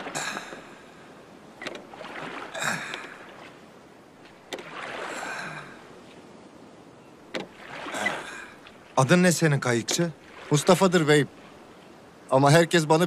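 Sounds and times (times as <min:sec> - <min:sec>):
oar knocking: 0:01.6 - 0:03.5
swish of water: 0:01.8 - 0:03.6, 0:04.3 - 0:06.0, 0:07.5 - 0:09.2, 0:10.1 - 0:11.8.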